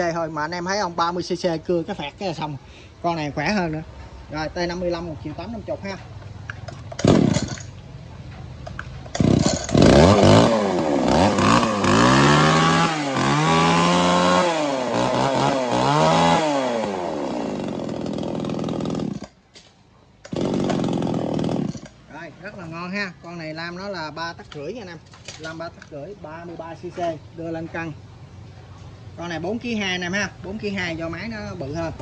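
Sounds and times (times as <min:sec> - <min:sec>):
chainsaw revving: 0:06.9 - 0:07.7, 0:09.1 - 0:19.4, 0:20.3 - 0:22.0.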